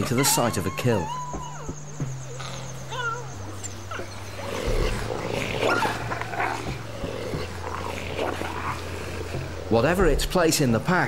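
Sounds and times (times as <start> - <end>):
wolf pups whining and yelping: 0.0 - 9.6
growling: 1.4 - 9.8.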